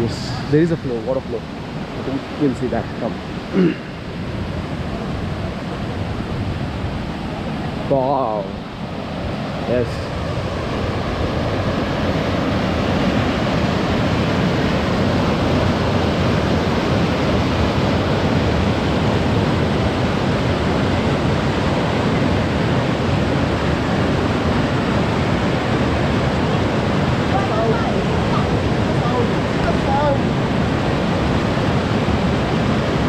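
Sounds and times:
stream rushing over boulders: 0.0s - 33.0s.

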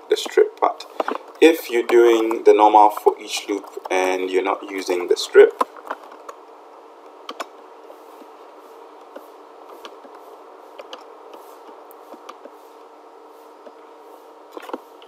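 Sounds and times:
steady hum: 0.0s - 15.0s
keyboard and mouse clicks: 7.2s - 7.5s, 10.8s - 11.4s, 14.6s - 14.8s.

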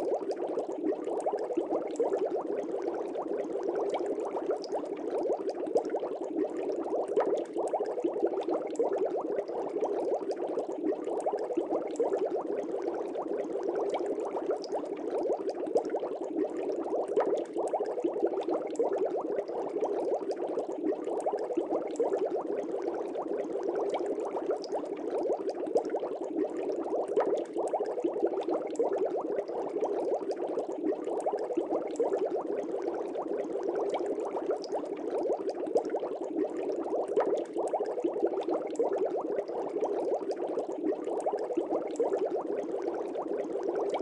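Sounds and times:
aquarium water bubbling: 0.0s - 44.0s.

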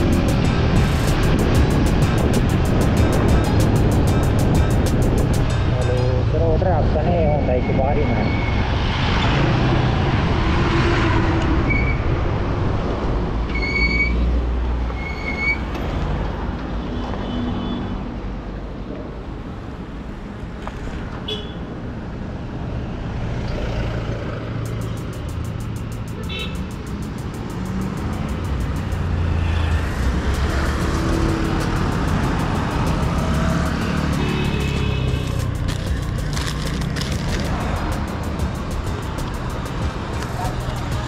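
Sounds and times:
road and traffic noise: 0.0s - 41.0s
short horn toots: 26.2s - 26.7s.

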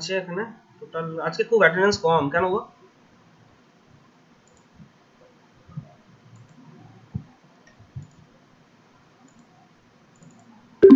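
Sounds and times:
computer mouse clicks: 4.4s - 4.7s, 6.3s - 8.3s, 9.2s - 10.5s.

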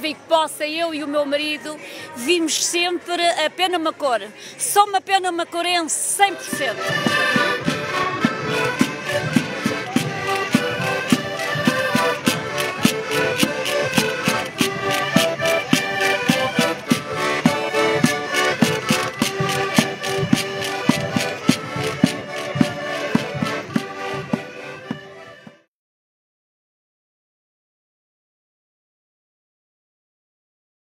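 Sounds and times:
accordions playing folk tune: 0.0s - 25.7s
steady percussion beat: 6.4s - 25.2s.

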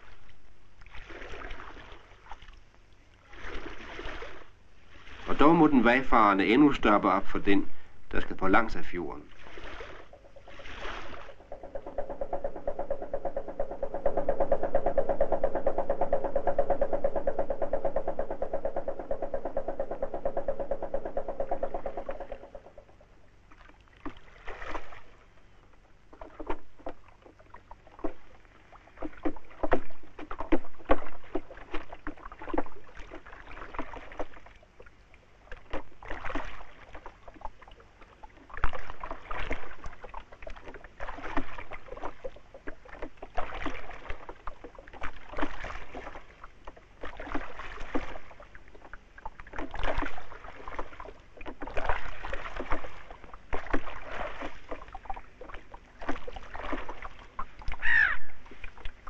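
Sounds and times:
water splashing against boat: 0.0s - 59.0s
boat engine throbbing: 10.1s - 23.2s.

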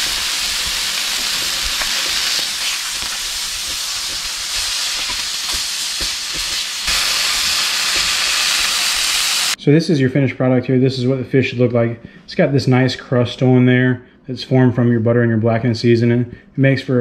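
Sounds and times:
small popping of frying fat: 0.0s - 8.8s
fish sizzling in a skillet: 0.0s - 9.6s.

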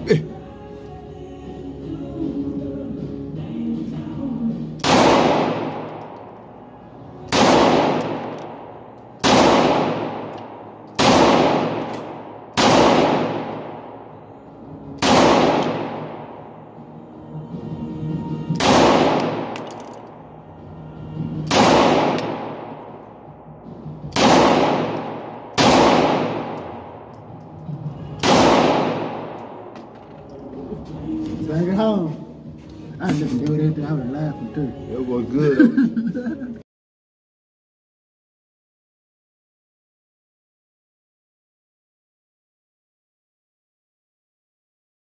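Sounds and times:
handgun shots echoing indoors: 4.8s - 6.4s, 7.3s - 14.0s, 15.0s - 16.4s, 18.6s - 20.2s, 21.4s - 23.1s, 24.1s - 27.2s, 28.1s - 30.2s.

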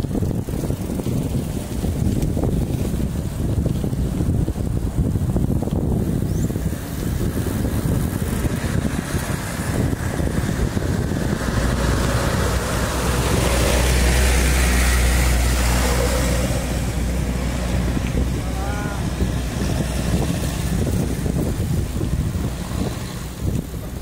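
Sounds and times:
dump truck diesel engine passing: 0.0s - 24.0s
wind rushing over microphone: 0.0s - 24.0s.

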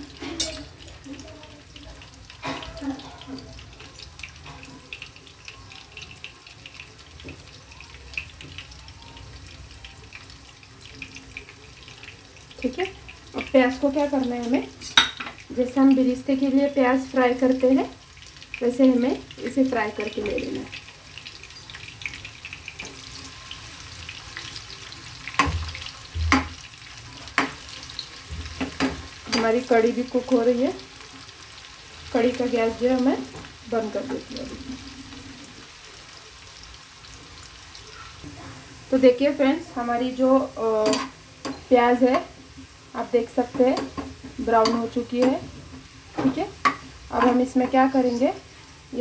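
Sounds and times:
onion sizzling in hot oil: 0.0s - 49.0s.

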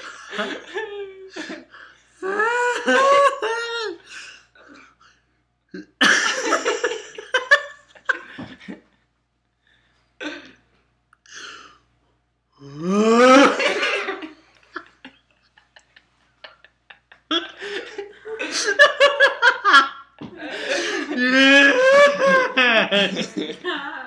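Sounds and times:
man laughing: 2.2s - 4.0s, 12.8s - 14.3s, 15.6s - 24.0s.

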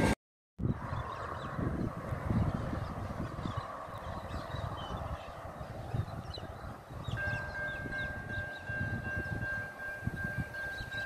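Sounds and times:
wind buffeting microphone: 0.0s - 11.0s
level crossing warning bell: 7.0s - 11.0s.

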